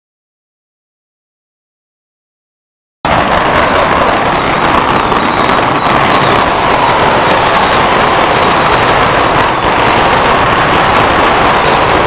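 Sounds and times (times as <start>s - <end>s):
firecrackers crackling and banging: 3.1s - 12.0s.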